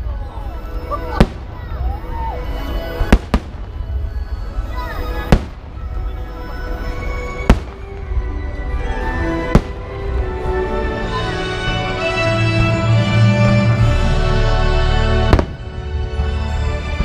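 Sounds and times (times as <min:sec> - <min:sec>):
background music: 0:00.0 - 0:17.0
fireworks bursting with sharp bangs: 0:00.7 - 0:11.2, 0:14.8 - 0:16.6.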